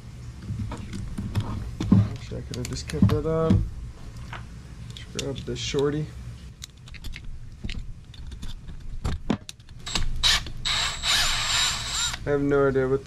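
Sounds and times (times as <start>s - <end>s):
clicks and metal taps: 2.2s - 3.3s
ratchet wrench buzzing: 9.8s - 12.3s.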